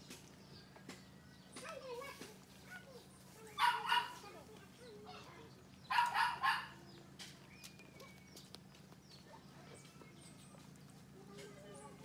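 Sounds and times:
dog barking: 3.6s - 4.2s, 5.9s - 6.8s.

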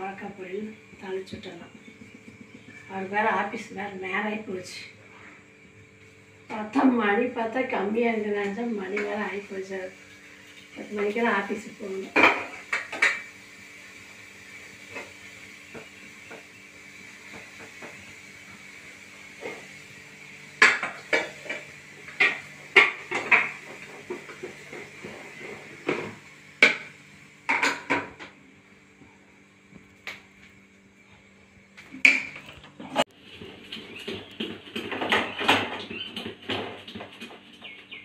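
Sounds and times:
steel pots and lids clanking: 10.3s - 13.4s, 20.6s - 26.9s, 27.5s - 28.3s.

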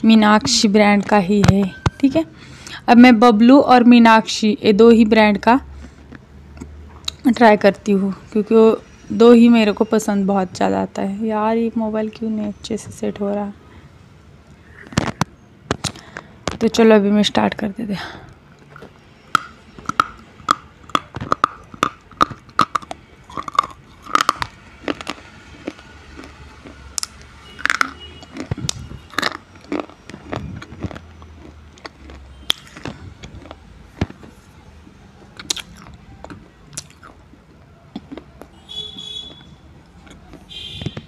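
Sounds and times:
crunching and chewing: 5.7s - 7.2s, 18.6s - 41.0s.

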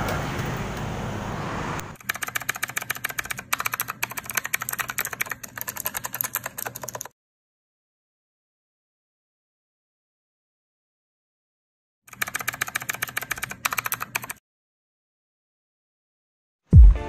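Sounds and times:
typewriter key clicks: 2.0s - 7.1s, 12.1s - 14.4s.

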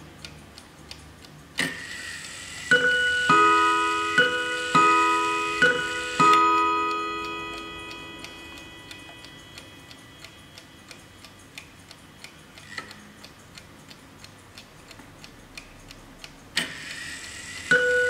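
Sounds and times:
clock ticking: 0.0s - 18.0s
clock chime bars ringing: 2.7s - 10.9s, 17.7s - 18.0s.

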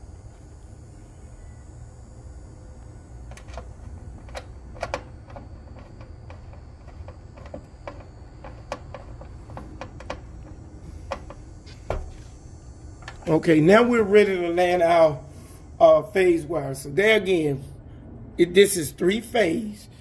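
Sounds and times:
screwdriver clicking: 3.3s - 11.4s.

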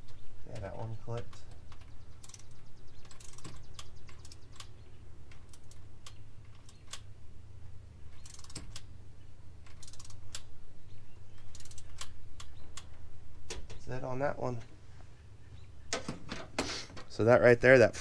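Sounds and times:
steady low hum: 0.0s - 18.0s
torque wrench ratchet clicks: 2.2s - 4.5s, 8.2s - 8.8s, 9.7s - 10.4s, 11.5s - 12.9s.

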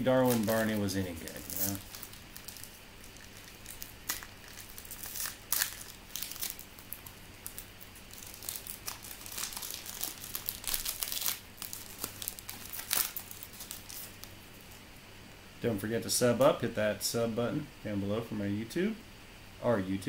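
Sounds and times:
card pack wrapper tearing and crinkling: 0.0s - 14.8s.

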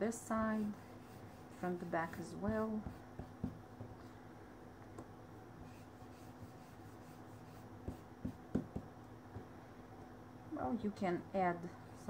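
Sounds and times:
dauber scrubbing on paper: 0.4s - 3.3s, 5.6s - 8.0s.

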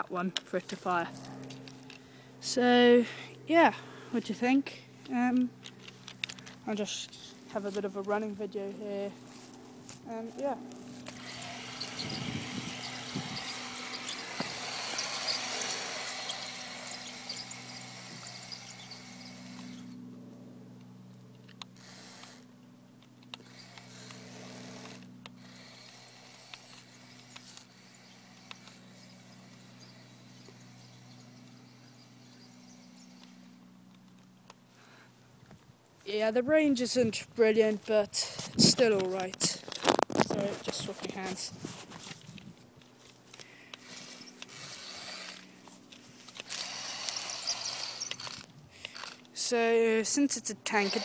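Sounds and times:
rustle: 0.0s - 51.0s
model tank low hum: 10.0s - 35.4s, 36.1s - 51.0s.

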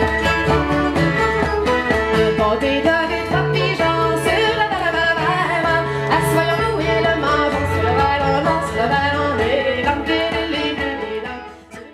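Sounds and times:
fiddle: 0.0s - 11.9s
person singing: 0.0s - 11.9s
plucked string instrument: 0.0s - 11.9s
strummed acoustic guitar: 0.0s - 11.9s.

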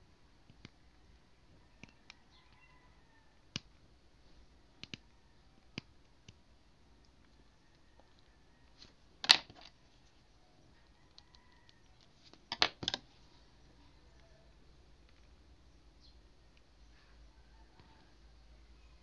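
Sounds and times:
sharp clicks: 4.8s - 6.4s.

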